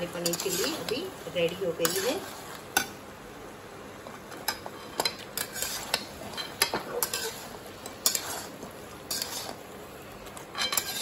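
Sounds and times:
metal spatula scraping a pan: 0.0s - 2.6s, 4.4s - 9.7s, 10.5s - 11.0s.

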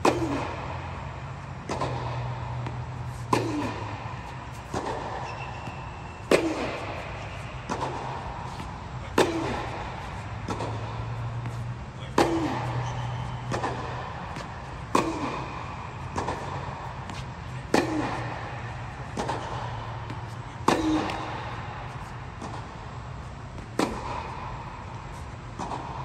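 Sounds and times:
steady low hum: 0.0s - 26.0s
tennis racket hitting ball: 0.0s - 26.0s.

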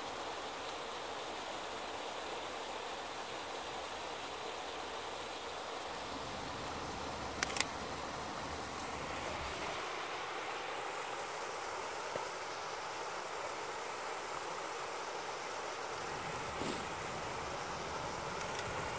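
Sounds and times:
stream over rocky cascade: 0.0s - 18.9s
sharp clicks: 7.4s - 7.8s, 18.4s - 18.8s.

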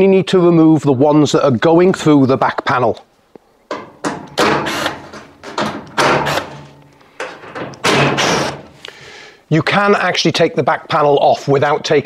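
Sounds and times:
cordless drill unscrewing screws: 4.3s - 8.5s.

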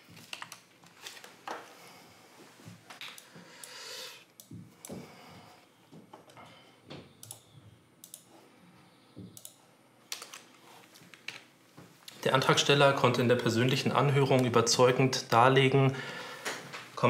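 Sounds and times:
faint irregular clicks: 7.2s - 8.3s.

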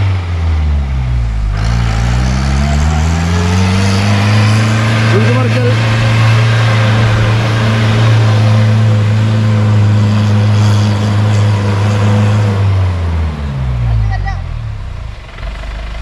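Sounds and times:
engine revving at full throttle: 0.0s - 16.0s.

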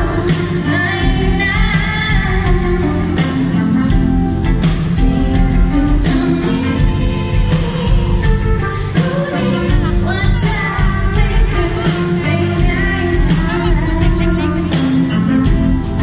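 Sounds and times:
drums: 0.0s - 16.0s
electric bass: 0.0s - 16.0s
woman singing: 0.0s - 16.0s.

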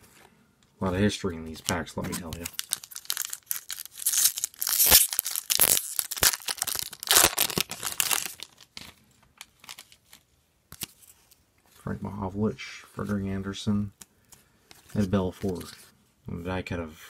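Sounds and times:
foil wrapper tearing and crinkling: 2.2s - 8.8s.

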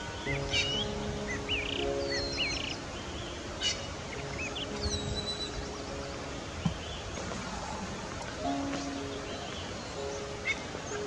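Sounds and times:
outdoor hiss: 0.0s - 11.0s
songbirds chirping and whistling: 0.0s - 11.0s.

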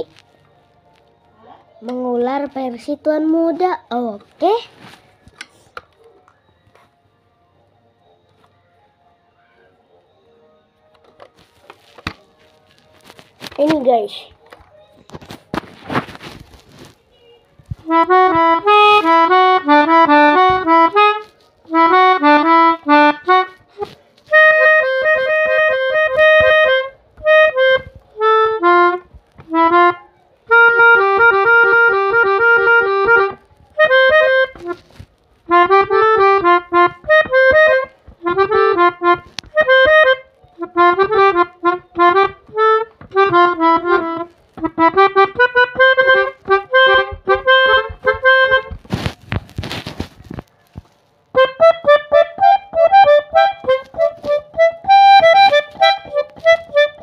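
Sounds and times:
melodica melody: 17.2s - 49.1s, 51.3s - 57.0s.

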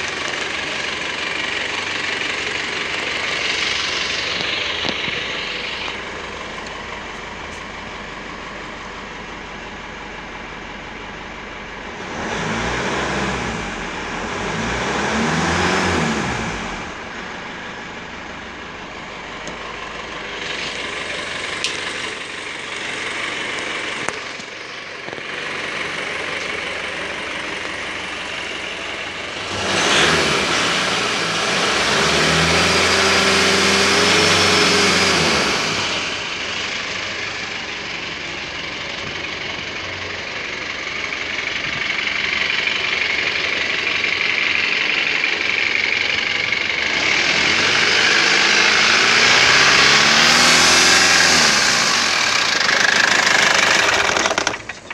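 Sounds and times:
diesel engine idling and revving: 0.0s - 54.9s.

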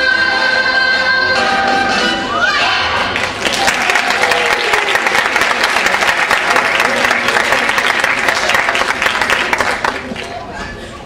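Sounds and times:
audience applauding: 3.1s - 10.5s.

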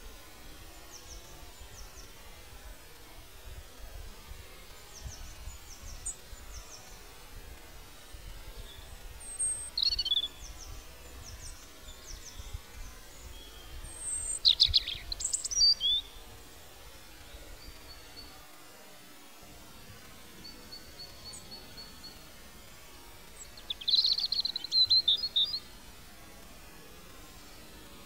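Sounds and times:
birds chirping: 8.6s - 16.2s, 20.4s - 22.3s, 23.3s - 25.8s
sharp bird calls: 9.3s - 10.5s, 13.4s - 16.2s, 23.4s - 25.7s.

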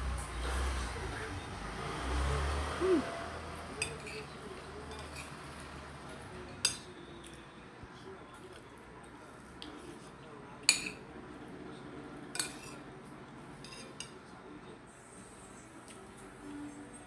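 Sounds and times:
metal spoon clinking on a plate: 3.8s - 5.4s, 6.5s - 7.4s, 10.6s - 11.0s, 12.3s - 12.8s, 13.6s - 14.2s.

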